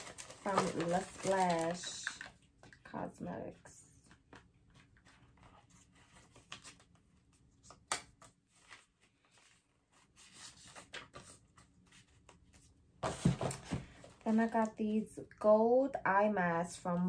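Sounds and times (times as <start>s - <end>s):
packaging rustling: 0.0s - 2.7s
light clicks of packaging: 0.0s - 2.9s.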